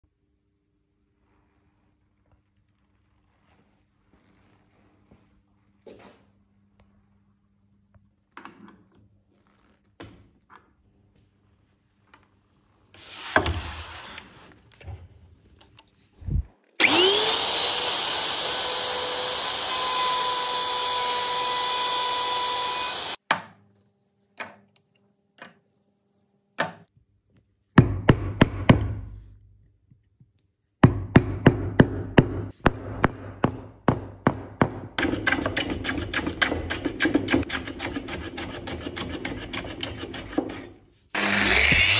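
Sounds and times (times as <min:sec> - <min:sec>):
router whining: 0:16.2 - 0:23.2, 0:41.2 - 0:41.9
hand plane rasping on wood: 0:35.0 - 0:40.8.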